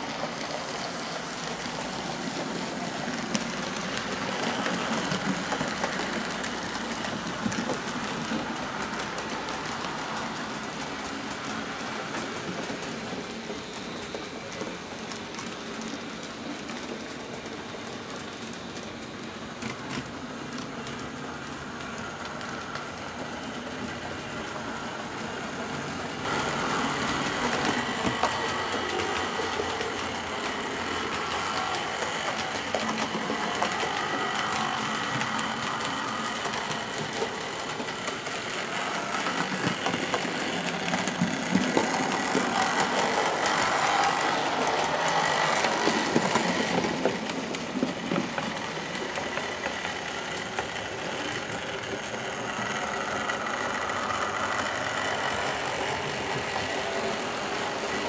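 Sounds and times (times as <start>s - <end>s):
wheels clicking over rails: 0.0s - 58.0s
model train motor whine: 20.8s - 58.0s.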